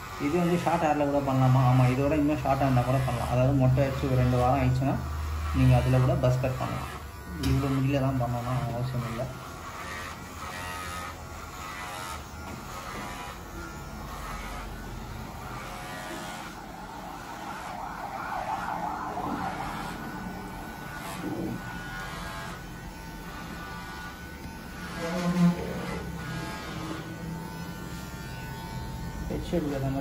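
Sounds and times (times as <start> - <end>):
electric hair clipper buzzing: 0.0 - 30.0
wavering wail: 16.4 - 21.0.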